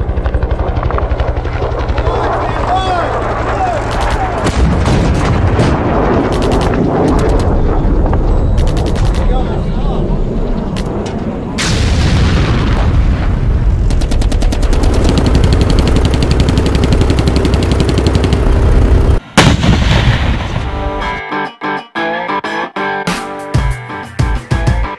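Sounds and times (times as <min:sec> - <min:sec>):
heavy low rumble: 0:00.0 - 0:21.2
rapid machine-gun fire: 0:03.8 - 0:07.6, 0:08.6 - 0:09.4, 0:13.7 - 0:19.6
guitar music: 0:20.6 - 0:24.9.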